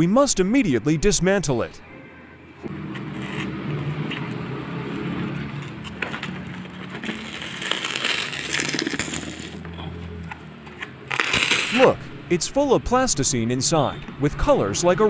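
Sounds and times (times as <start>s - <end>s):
insulation crunching and crackling: 2.6s - 12.0s.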